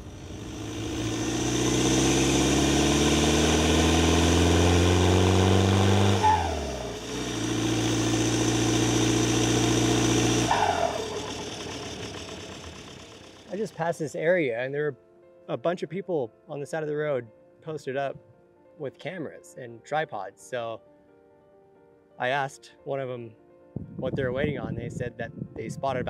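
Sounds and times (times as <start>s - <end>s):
van engine accelerating: 0.0s - 13.9s.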